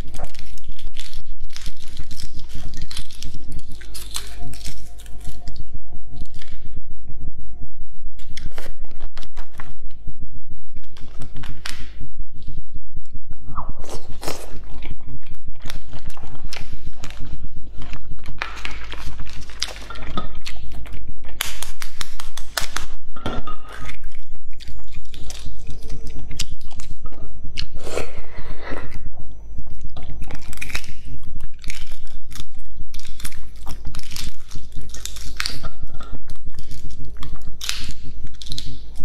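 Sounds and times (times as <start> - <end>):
biting and chewing: 0.0 - 6.6, 10.7 - 39.0
steady low hum: 0.0 - 39.0
eggshells crackling: 29.8 - 39.0.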